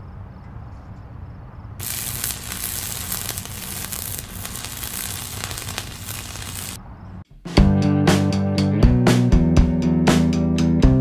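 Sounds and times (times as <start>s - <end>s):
hissing crackling noise: 1.8s - 6.8s.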